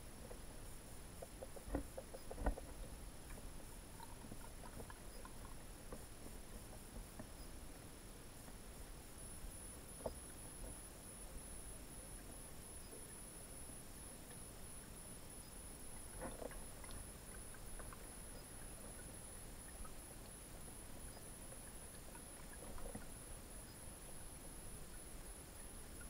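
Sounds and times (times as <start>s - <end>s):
faint camera hiss: 0.0s - 26.0s.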